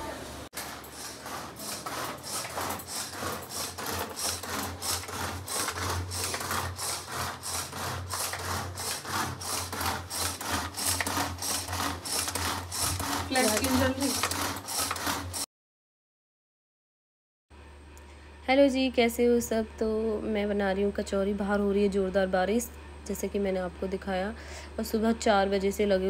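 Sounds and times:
kitchen tool scraping food: 0.5s - 15.5s.

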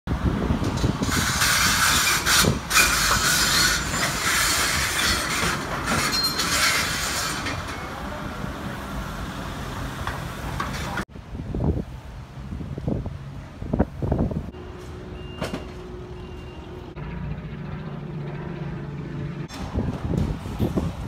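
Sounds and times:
excavator engine: 14.5s - 21.0s.

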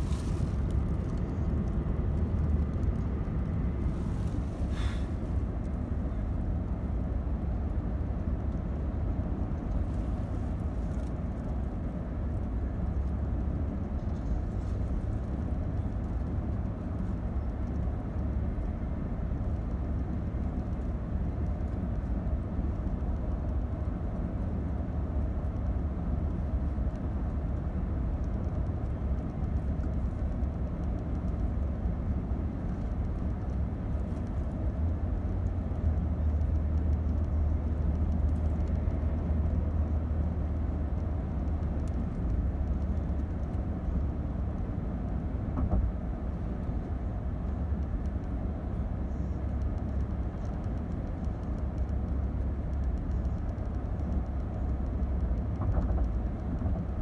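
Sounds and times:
car engine and tyres rumbling: 0.0s - 57.0s.

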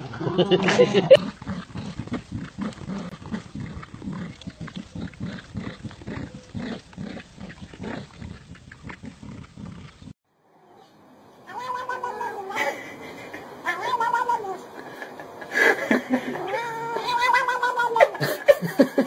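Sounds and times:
dogs growling in play: 1.1s - 10.8s.

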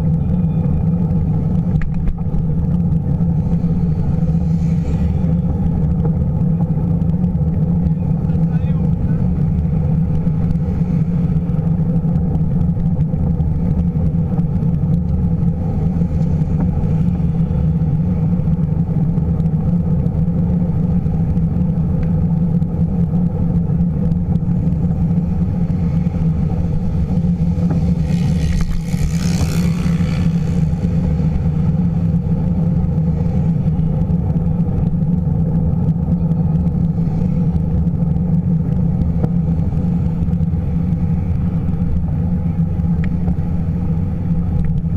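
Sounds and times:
car traffic passing: 0.0s - 44.9s
road vibration rumble: 0.0s - 44.9s.

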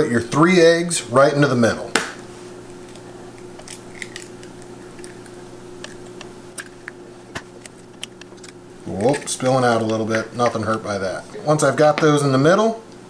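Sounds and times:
eggshells cracking: 2.7s - 10.5s.

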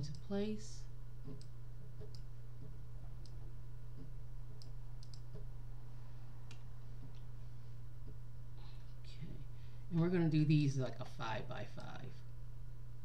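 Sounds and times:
steady low hum: 0.0s - 13.0s
computer mouse clicking: 1.2s - 3.4s, 4.0s - 5.5s.

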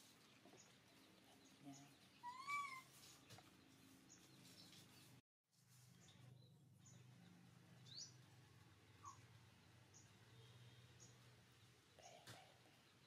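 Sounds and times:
baby monkey coo call: 2.2s - 2.9s.

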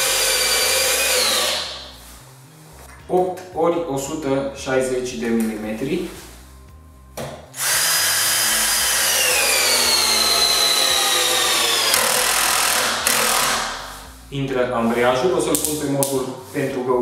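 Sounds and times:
cordless drill motor whining: 0.0s - 1.8s, 7.6s - 13.9s
drill torque clutch: 0.0s - 1.8s, 7.6s - 13.8s.

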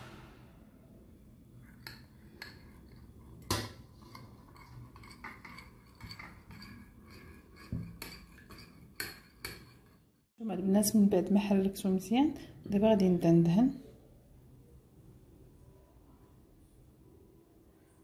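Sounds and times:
metal spoon clinking in bowl: 1.7s - 10.1s.

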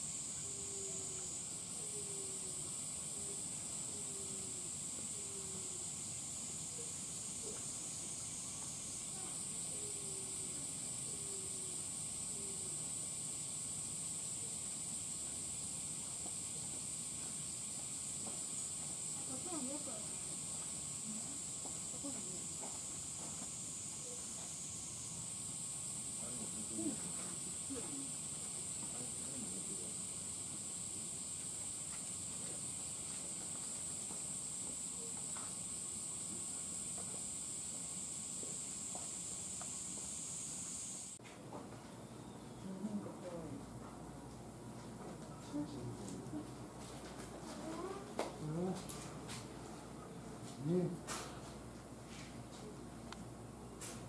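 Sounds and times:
high-pitched hiss: 0.0s - 41.2s.

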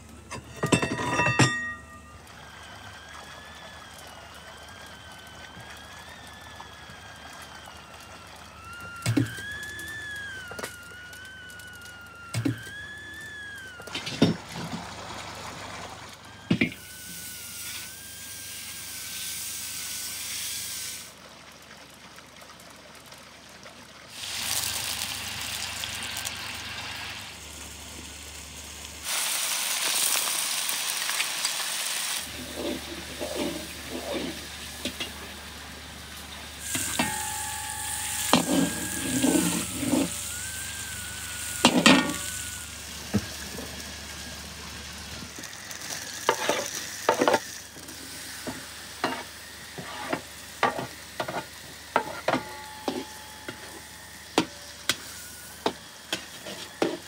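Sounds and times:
butter and garlic sizzling: 16.4s - 21.1s, 24.2s - 57.0s.

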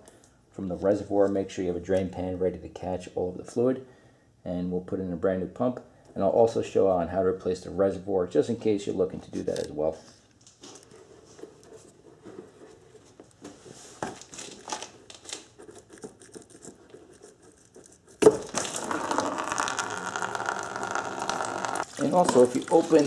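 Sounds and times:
fluid pouring into drain pan: 18.2s - 23.0s.

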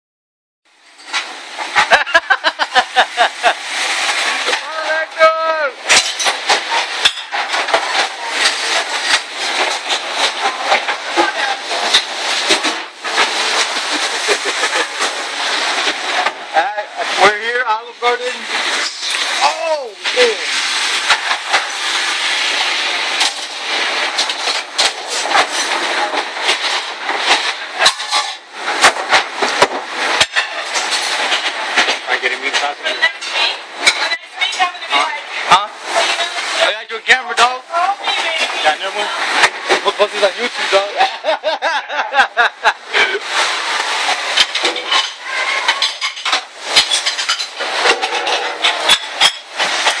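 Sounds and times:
steady rushing noise: 1.0s - 50.0s
kitchen din: 5.8s - 17.2s, 18.3s - 36.6s, 37.8s - 50.0s
plates and silverware clattering: 5.9s - 16.4s, 43.3s - 50.0s
plates clattering and clinking: 43.4s - 50.0s.

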